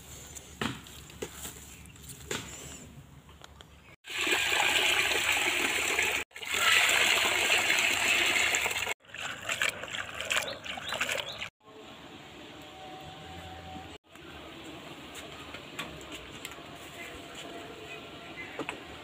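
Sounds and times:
water pouring into metal bowl: 0:04.1 - 0:11.5.

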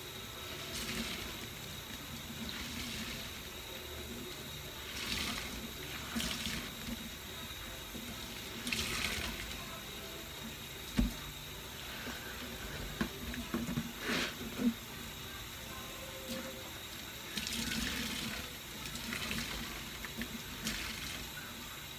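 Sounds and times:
faucet running into steel sink: 0:00.4 - 0:09.9, 0:16.3 - 0:21.7.

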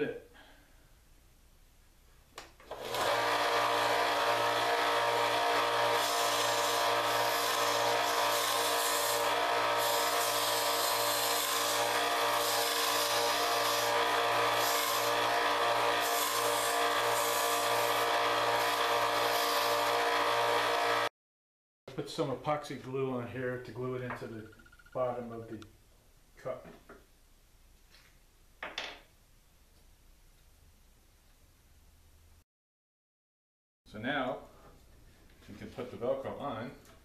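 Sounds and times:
belt sander motor humming: 0:02.7 - 0:21.1.

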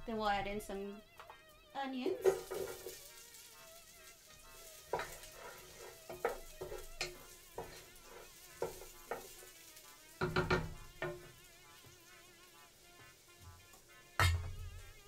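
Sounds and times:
onions sizzling in hot oil: 0:00.8 - 0:15.0
wooden spoon knocking a pot: 0:02.0 - 0:03.0, 0:04.9 - 0:07.8, 0:08.6 - 0:09.4, 0:10.2 - 0:11.4, 0:14.2 - 0:14.6.

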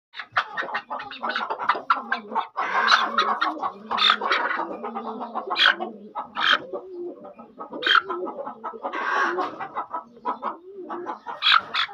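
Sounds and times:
chickens clucking: 0:00.2 - 0:11.9.

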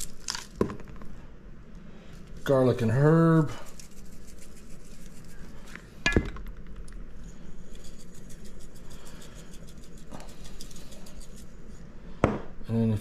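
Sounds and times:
seasoning shaken from jar: 0:02.4 - 0:05.7, 0:07.2 - 0:11.8.

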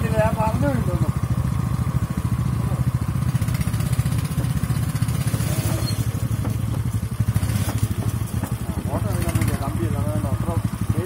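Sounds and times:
small petrol engine running: 0:00.0 - 0:11.0.

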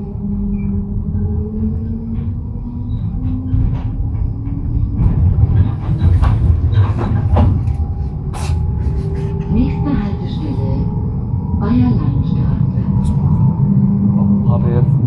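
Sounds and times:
tram rumbling: 0:00.0 - 0:15.0
wheels clacking over rail joints: 0:02.1 - 0:08.0.

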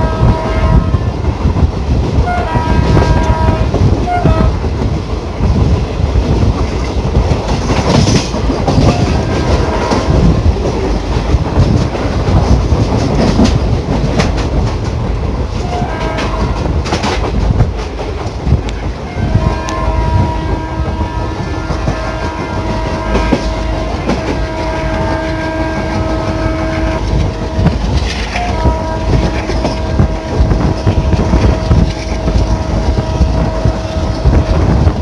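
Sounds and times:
locomotive horn blasts: 0:00.0 - 0:01.2, 0:02.2 - 0:04.6, 0:08.9 - 0:10.3, 0:15.6 - 0:16.6, 0:19.1 - 0:34.7
train rumble: 0:00.0 - 0:35.0
wind: 0:00.0 - 0:35.0.

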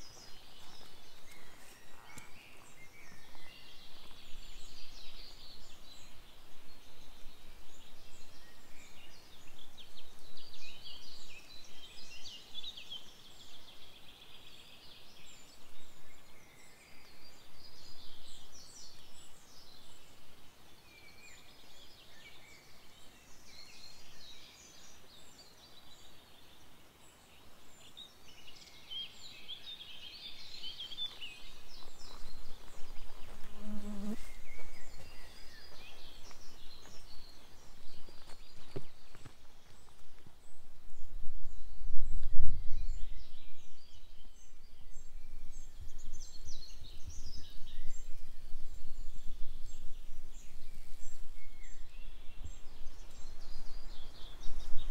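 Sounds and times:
songbirds chirping and trilling: 0:00.0 - 0:54.9.

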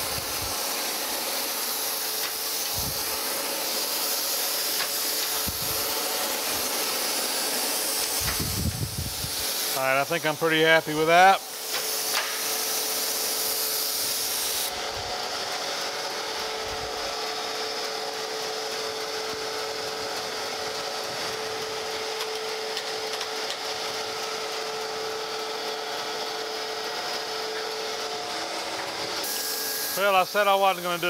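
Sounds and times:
surface grinder humming: 0:00.0 - 0:10.4, 0:11.0 - 0:30.8
grinding hiss: 0:00.0 - 0:14.8, 0:24.9 - 0:31.0.

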